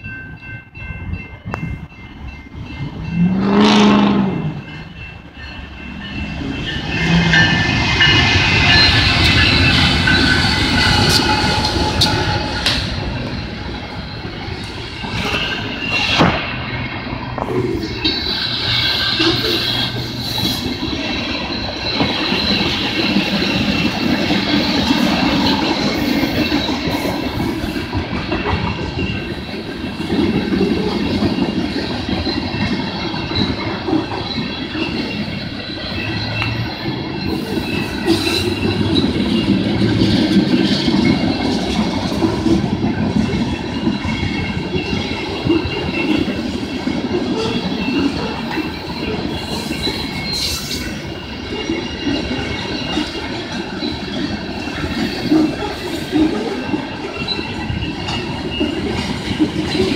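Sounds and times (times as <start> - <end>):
high ringing: 0.0 - 59.1
train wheels clattering on rails: 0.0 - 59.9.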